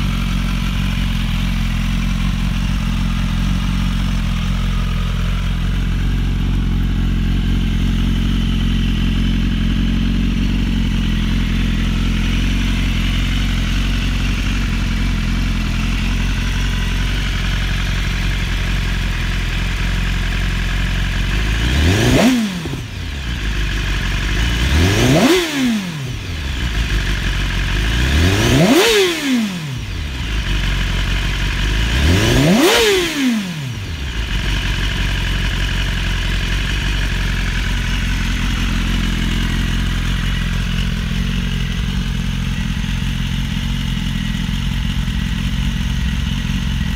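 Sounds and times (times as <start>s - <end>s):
motorcycle engine idling and revving: 0.0s - 46.9s.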